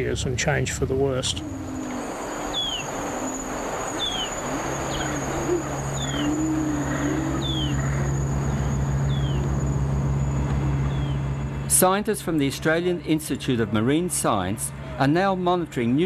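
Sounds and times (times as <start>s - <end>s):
boat engine humming: 0.0s - 16.0s
high insect-like whine: 1.0s - 11.7s
falling bird chirps: 1.7s - 9.5s.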